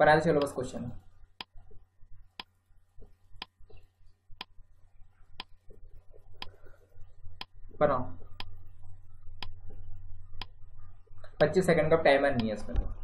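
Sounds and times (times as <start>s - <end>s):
faint low hum: 0.0s - 13.0s
timer ticking: 1.4s - 1.8s, 2.4s - 4.6s, 5.4s - 6.7s, 7.4s - 9.8s.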